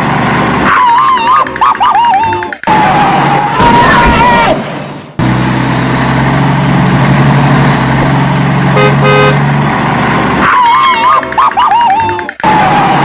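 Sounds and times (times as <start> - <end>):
vehicle engine running: 0.0 - 3.6, 4.6 - 13.0
horn toots: 8.8 - 9.4.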